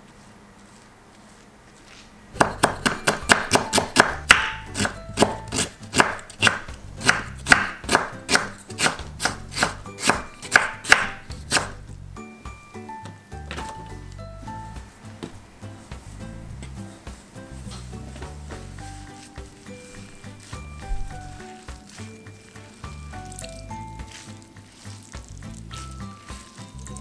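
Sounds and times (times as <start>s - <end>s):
knife chopping on wooden board: 2.4s - 11.8s
soft plucked background music: 2.4s - 27.0s.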